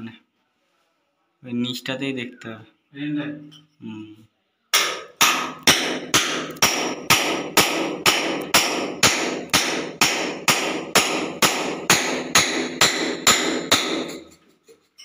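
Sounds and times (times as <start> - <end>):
hammer blows ringing: 4.8 - 14.3.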